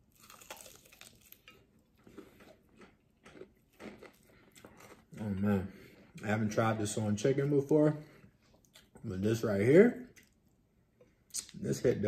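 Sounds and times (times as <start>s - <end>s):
chewing crispy fried chicken: 0.0s - 6.4s.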